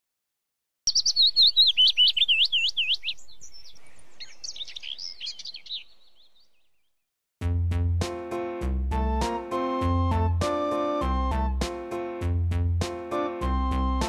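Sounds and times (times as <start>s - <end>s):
bird whistling notes: 0.9s - 6.2s
bird chirping: 0.9s - 7.0s.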